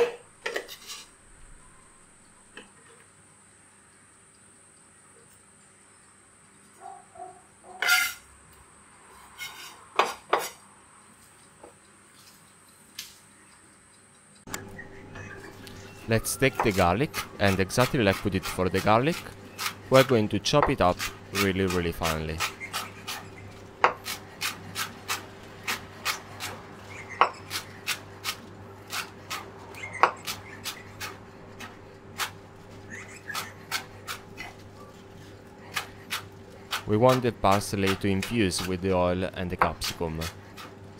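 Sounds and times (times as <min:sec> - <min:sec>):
knife scraping on wooden board: 0:00.0 - 0:01.2, 0:07.7 - 0:08.3, 0:09.2 - 0:10.6, 0:16.6 - 0:38.8
faint steady hum: 0:00.0 - 0:40.9
knife chopping on wooden board: 0:23.8 - 0:26.6, 0:35.7 - 0:38.8.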